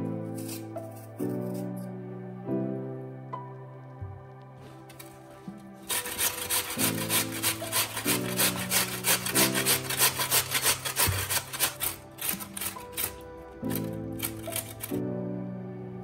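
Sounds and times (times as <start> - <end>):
potato rasping on metal grater: 5.8 - 14.9.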